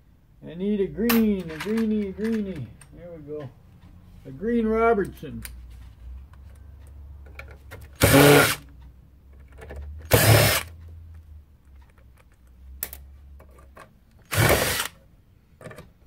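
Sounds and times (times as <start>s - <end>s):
cordless driver backing out screws: 14.2s - 15.0s.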